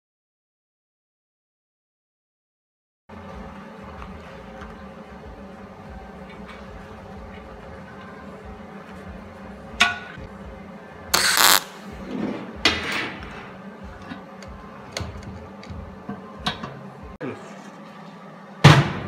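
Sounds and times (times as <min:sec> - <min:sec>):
steady low hum: 0:03.1 - 0:19.0
welding arc crackle: 0:11.1 - 0:11.8.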